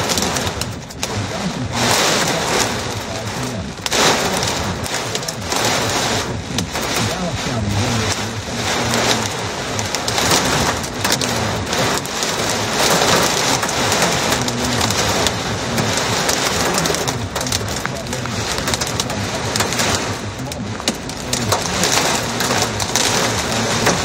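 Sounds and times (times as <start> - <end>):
heavy rain on car windshield: 0.0 - 24.0.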